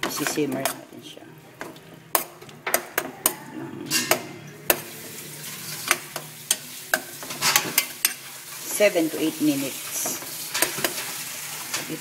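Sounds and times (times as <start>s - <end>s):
stew simmering: 0.0s - 12.0s
metal spoon scraping pot: 2.1s - 8.8s.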